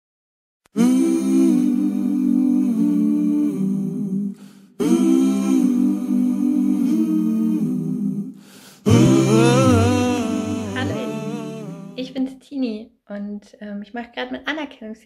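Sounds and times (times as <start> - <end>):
voices humming in harmony: 0.8 - 12.0.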